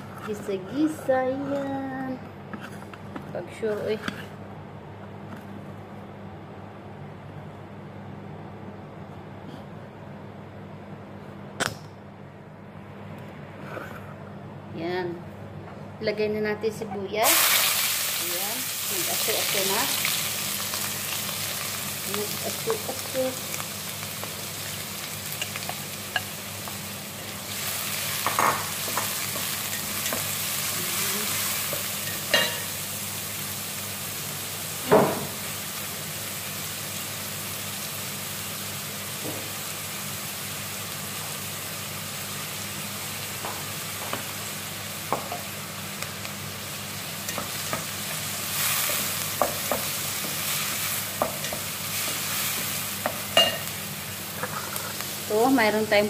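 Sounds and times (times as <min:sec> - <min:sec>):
onion sizzling in hot oil: 0:17.2 - 0:56.0.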